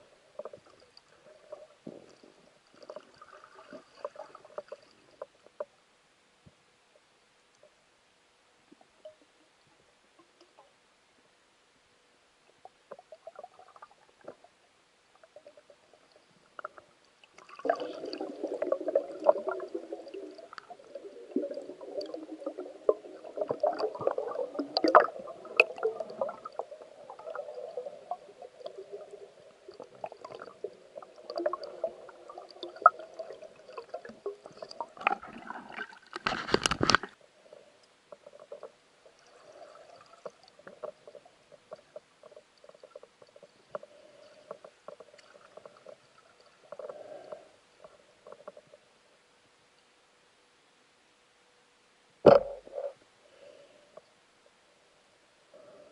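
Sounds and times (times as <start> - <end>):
small clicks and knocks: 36.1 - 37.2.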